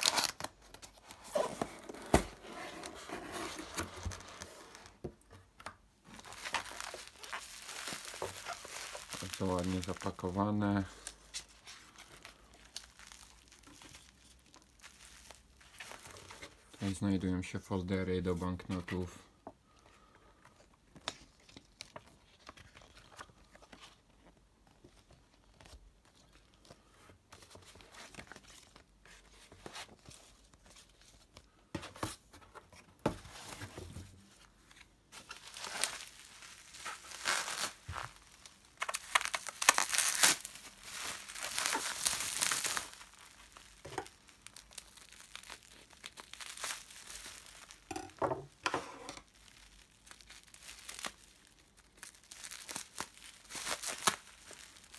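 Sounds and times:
paper rustling: 0.0 - 5.0, 33.0 - 47.9
plastic wrapping crinkling and tearing: 0.0 - 5.0, 6.0 - 19.0, 34.3 - 54.9.

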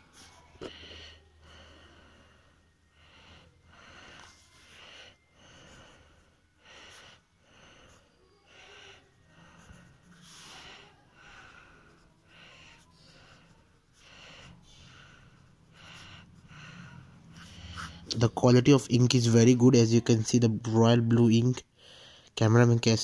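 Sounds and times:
fountain pen scratching on paper: 9.6 - 10.9, 11.9 - 14.0.

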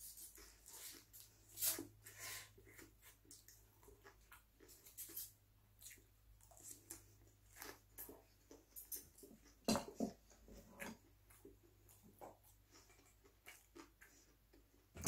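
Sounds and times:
person chewing food: 0.0 - 15.0.

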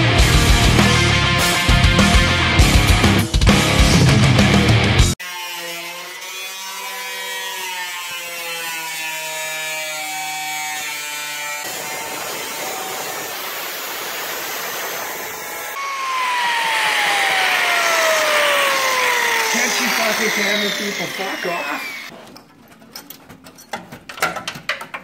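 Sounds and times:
angle grinder cutting steel: 5.2 - 22.2.

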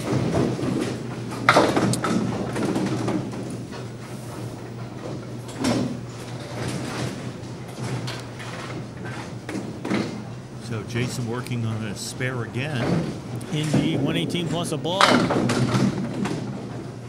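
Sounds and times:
bowling pins knock and clatter: 0.0 - 3.6, 15.0 - 17.0
steady low hum: 3.3 - 15.9
rumble of lanes and machinery: 10.6 - 15.3.

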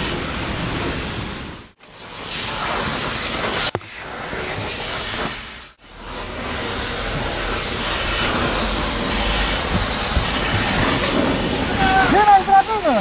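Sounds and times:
loud rushing hiss: 0.0 - 13.0.

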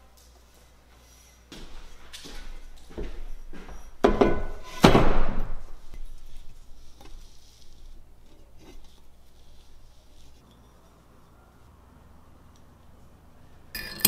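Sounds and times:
metal tube knocking on workbench: 4.0 - 4.5.

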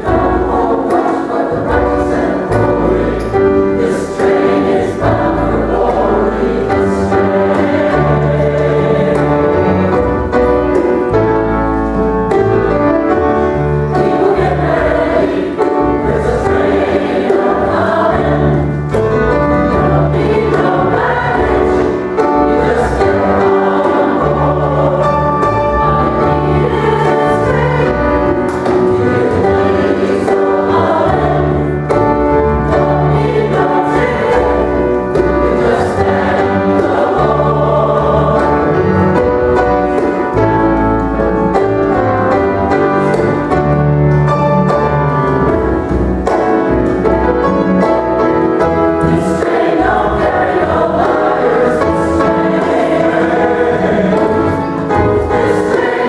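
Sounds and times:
choir singing in harmony: 0.0 - 43.8, 45.4 - 56.0
grand piano: 0.0 - 56.0
upright bass: 0.0 - 56.0.

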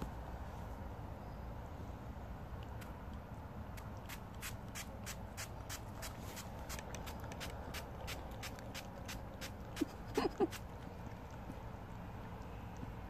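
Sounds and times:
spray bottle spritzing: 4.1 - 10.6.

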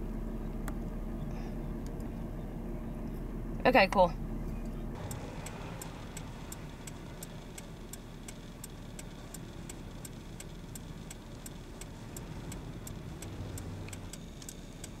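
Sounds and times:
steady low rumble: 0.0 - 15.0
hazard-light flasher ticking: 5.0 - 15.0.

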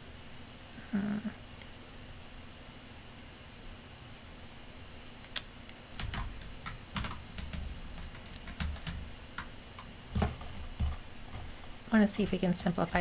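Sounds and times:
keyboard typing: 5.4 - 11.5.

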